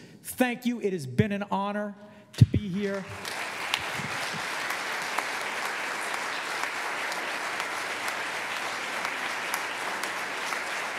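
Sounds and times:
audience applauding: 0:02.8 - 0:10.9.

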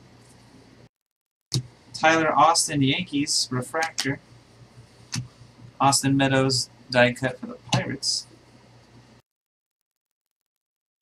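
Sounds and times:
faint room hum: 0:00.0 - 0:00.9, 0:01.5 - 0:09.2.

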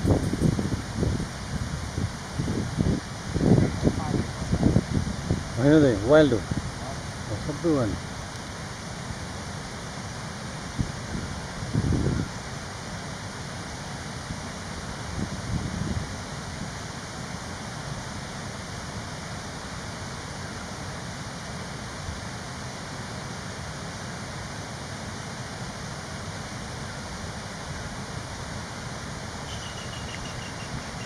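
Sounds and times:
steady rushing noise: 0:00.0 - 0:31.0.

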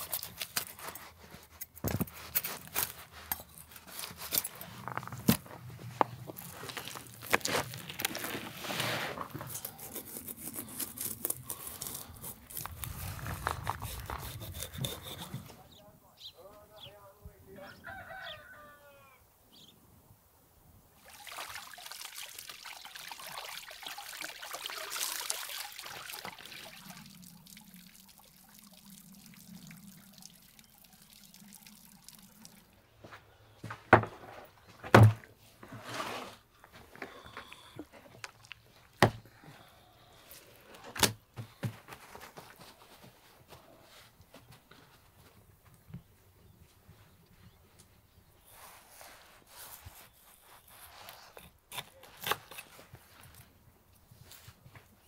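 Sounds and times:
water running from a hose: 0:21.0 - 0:32.8.

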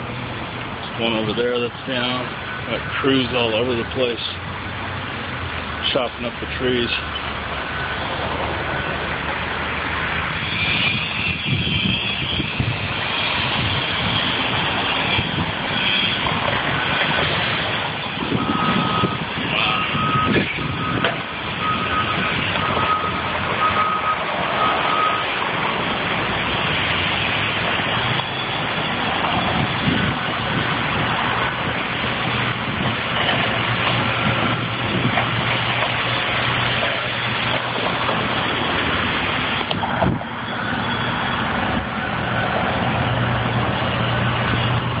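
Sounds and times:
machinery engines running: 0:00.0 - 0:45.0
reversing alarm beeping: 0:06.9 - 0:09.2, 0:14.9 - 0:30.7, 0:36.8 - 0:42.5.

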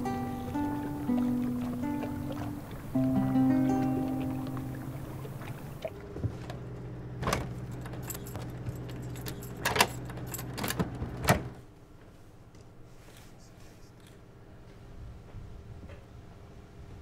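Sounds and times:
engine humming: 0:00.0 - 0:11.8
metallic jingling clinks: 0:07.6 - 0:10.6.

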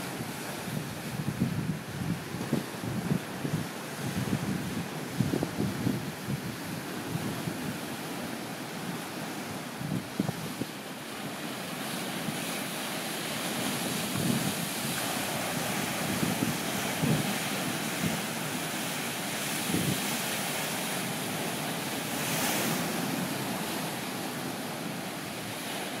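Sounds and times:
wind buffeting microphone: 0:00.0 - 0:10.7, 0:13.5 - 0:20.4
waves breaking on rocky shore: 0:00.0 - 0:26.0.

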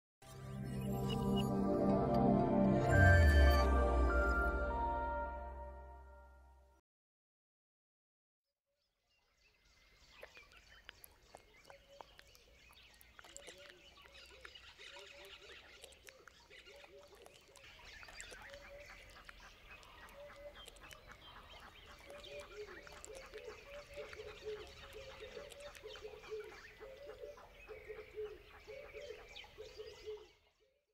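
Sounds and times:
birds chirping: 0:09.3 - 0:30.4.

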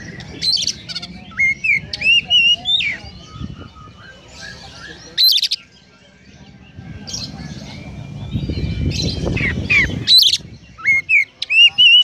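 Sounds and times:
bird singing sharp chirps: 0:00.0 - 0:12.0
low rumble: 0:06.0 - 0:10.8.

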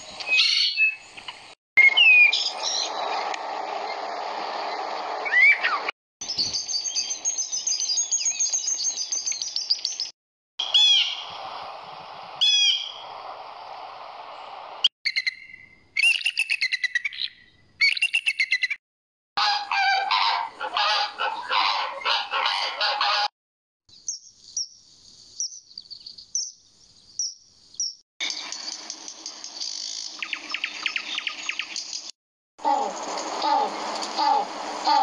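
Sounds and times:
sweeping bird calls: 0:00.0 - 0:03.2, 0:04.7 - 0:11.4, 0:12.4 - 0:13.1, 0:29.6 - 0:32.0
sparrow chirping: 0:06.2 - 0:10.1, 0:23.9 - 0:28.4
blue jay calls: 0:10.6 - 0:11.3, 0:32.6 - 0:35.0
flamingo calling: 0:19.4 - 0:23.3, 0:32.6 - 0:35.0.

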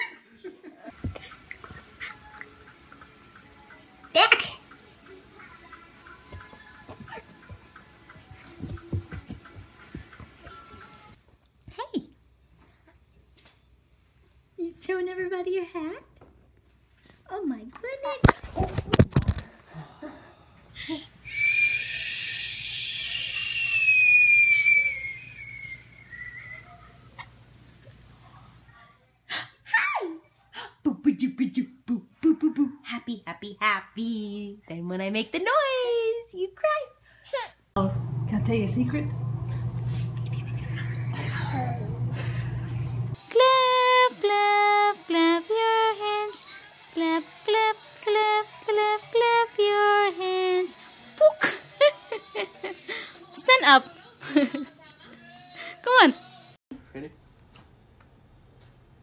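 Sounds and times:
person whistling long note: 0:21.3 - 0:26.7.

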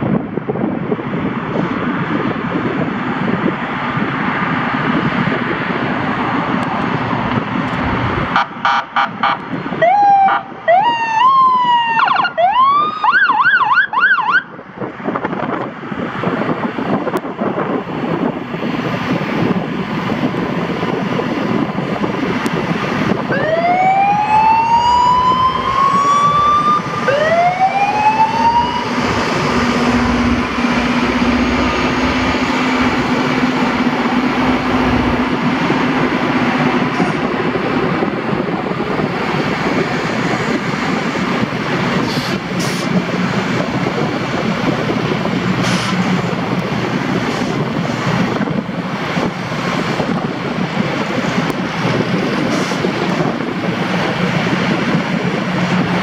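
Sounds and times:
rail grinder rumbling and grinding: 0:00.0 - 0:09.8, 0:14.6 - 0:56.0
rising whines: 0:23.2 - 0:37.9.

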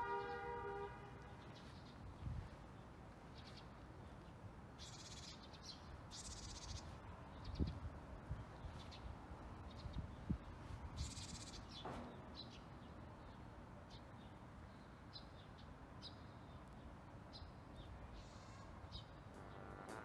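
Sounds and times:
small birds chirping: 0:01.4 - 0:20.0
high buzzing trill: 0:19.3 - 0:20.0.

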